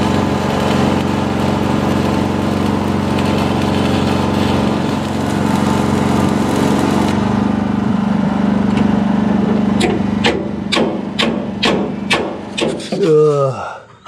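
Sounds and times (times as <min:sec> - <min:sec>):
welding arc crackling: 0:00.0 - 0:07.2
small engine droning: 0:00.0 - 0:12.1.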